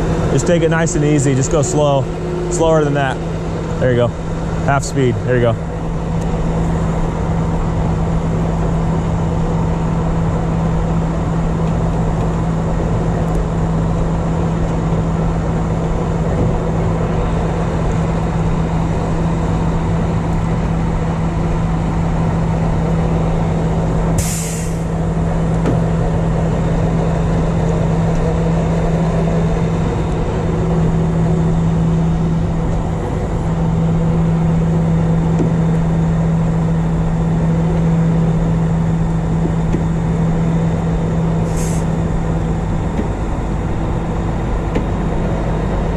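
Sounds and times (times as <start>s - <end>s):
truck engine running: 0.0s - 45.9s
winch hauling: 0.0s - 45.9s
sharp hiss of air: 24.2s - 24.9s, 41.4s - 41.9s.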